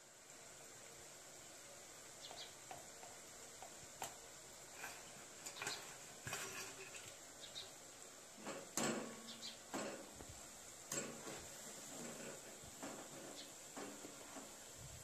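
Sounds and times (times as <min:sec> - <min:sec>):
potatoes sizzling in hot oil: 0:00.0 - 0:15.0
strainer scraping metal pan: 0:04.8 - 0:07.2, 0:08.4 - 0:10.2, 0:10.9 - 0:14.6.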